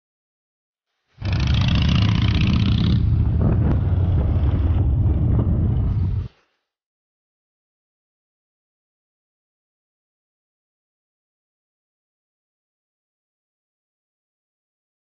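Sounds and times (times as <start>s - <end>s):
motorcycle engine rumble: 1.2s - 6.3s.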